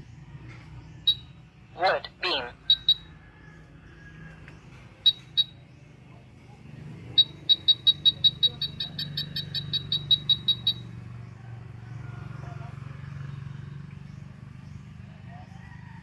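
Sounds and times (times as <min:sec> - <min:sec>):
wall scanner beeping: 0:01.1 - 0:01.3, 0:01.9 - 0:03.1, 0:05.0 - 0:05.6, 0:07.1 - 0:10.9.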